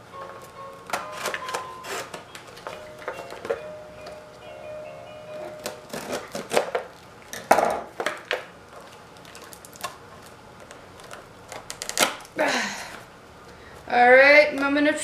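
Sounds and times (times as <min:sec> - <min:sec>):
scissors cutting tape: 0:11.0 - 0:12.3.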